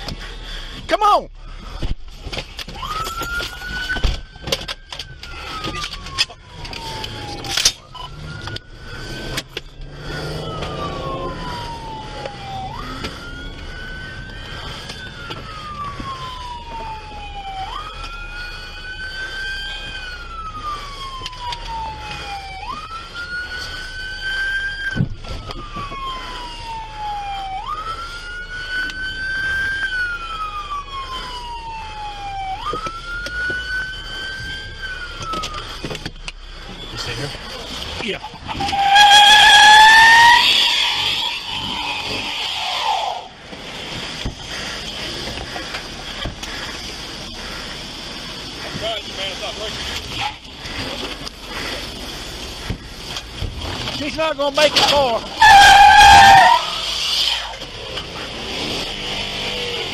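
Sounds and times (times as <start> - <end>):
police siren wailing: 0.0 - 59.9
fainter higher siren: 2.6 - 59.9
car engine running: 40.8 - 55.5.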